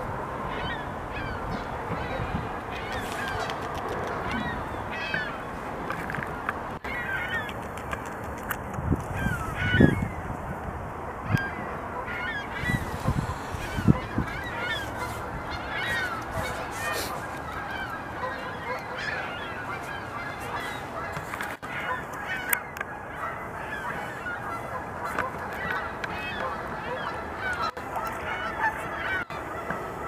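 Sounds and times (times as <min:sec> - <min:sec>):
flock of birds calling: 0:00.0 - 0:08.1, 0:09.1 - 0:30.0.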